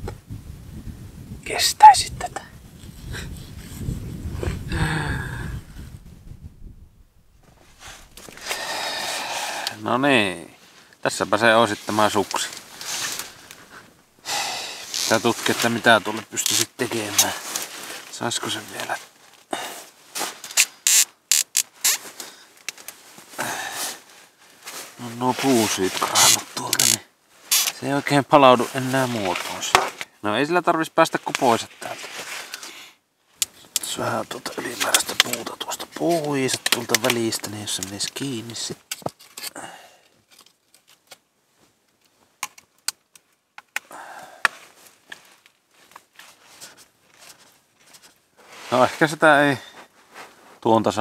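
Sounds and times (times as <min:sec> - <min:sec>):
cracked ski scraping and rubbing: 0:11.6 - 0:13.9, 0:14.8 - 0:19.5, 0:20.1 - 0:30.1, 0:31.2 - 0:32.8, 0:33.5 - 0:39.6, 0:44.5 - 0:50.6
wood snapping and clicking: 0:36.2 - 0:38.2, 0:40.3 - 0:41.2, 0:41.9 - 0:45.2.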